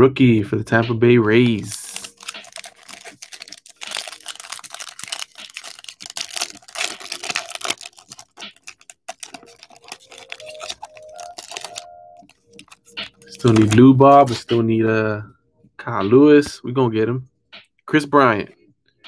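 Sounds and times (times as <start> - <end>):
trading cards flipped by hand: 1.4 - 14.5.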